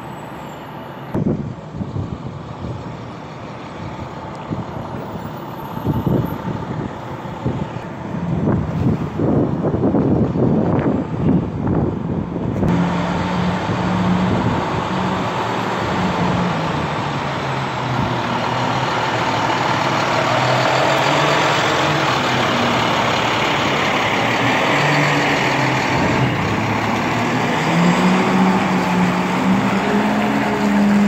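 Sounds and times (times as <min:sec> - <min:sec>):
garbage truck engine running: 0:12.7 - 0:31.0.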